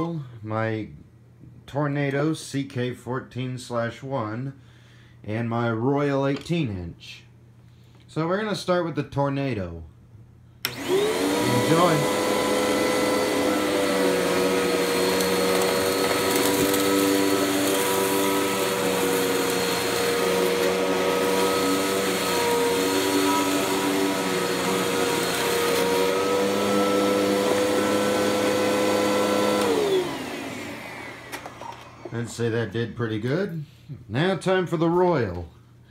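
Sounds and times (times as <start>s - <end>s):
vacuum cleaner running on carpet: 10.7s - 32.3s
vacuum motor winding down: 10.7s - 32.3s.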